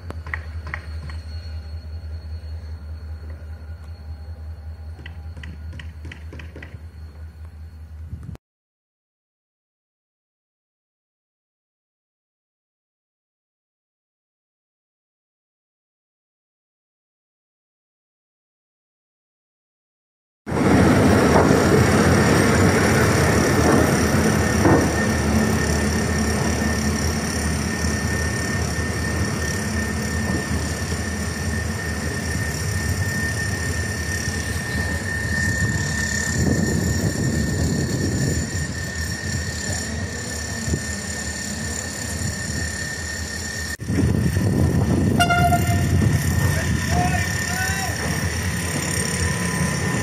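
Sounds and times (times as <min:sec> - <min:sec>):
thin high whine: 0:00.0 - 0:08.4, 0:24.2 - 0:50.0
train low rumble: 0:00.0 - 0:08.4, 0:20.5 - 0:50.0.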